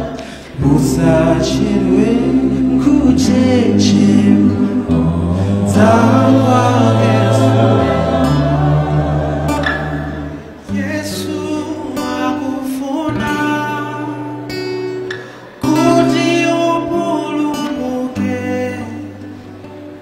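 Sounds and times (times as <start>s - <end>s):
deep bass voices holding low notes: 0.0s - 12.0s
gospel vocal group singing in harmony: 0.0s - 13.3s.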